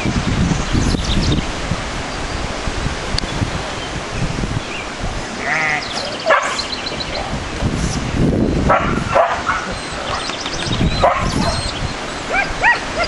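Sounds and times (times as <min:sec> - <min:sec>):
sheep bleating: 0:05.4 - 0:06.0.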